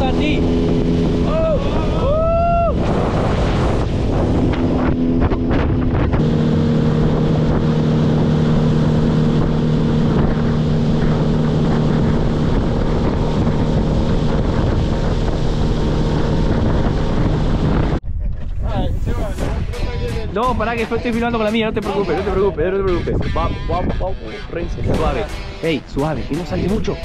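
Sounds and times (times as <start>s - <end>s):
outboard motor running: 0.0s - 18.0s
wind buffeting microphone: 0.0s - 27.0s.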